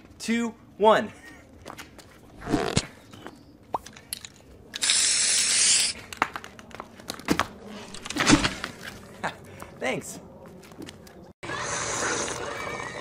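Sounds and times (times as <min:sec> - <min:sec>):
hissing burst of noise: 0:04.8 - 0:06.0.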